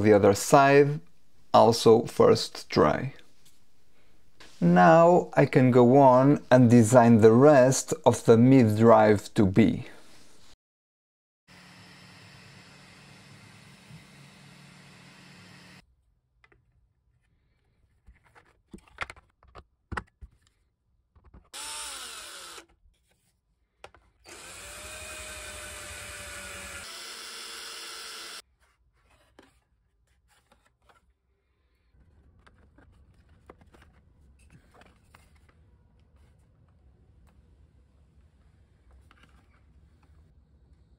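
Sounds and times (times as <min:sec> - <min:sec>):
cordless drill driving a screw: 0:21.5 - 0:22.7, 0:24.3 - 0:28.4.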